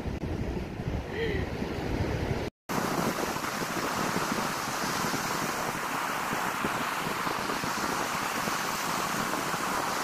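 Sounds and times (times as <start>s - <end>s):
wind on microphone: 0.0s - 10.0s
ocean surf breaking: 2.7s - 10.0s.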